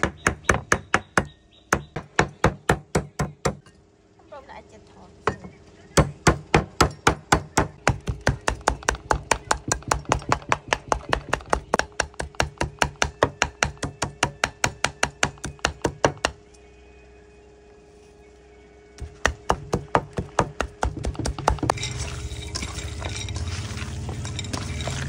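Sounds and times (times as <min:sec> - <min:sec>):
cleaver chopping on wooden block: 0:00.0 - 0:03.6, 0:06.0 - 0:16.4, 0:19.0 - 0:21.8.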